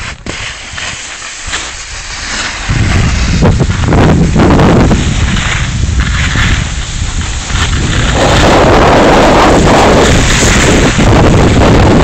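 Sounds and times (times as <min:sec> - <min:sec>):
snow scraping under board: 0:00.0 - 0:12.0
wind buffeting microphone: 0:02.6 - 0:12.0.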